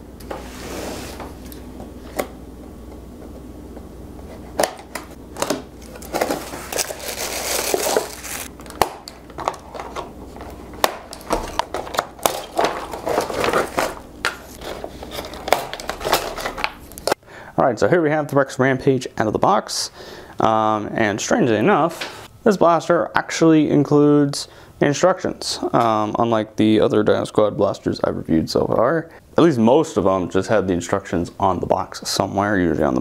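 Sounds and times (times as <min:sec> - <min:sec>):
packaging crinkling and rustling: 0:04.6 - 0:17.2.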